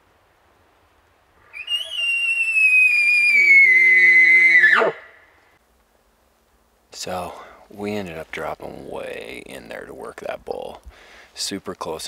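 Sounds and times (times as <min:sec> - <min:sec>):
elk call whistle: 0:01.4 - 0:05.4.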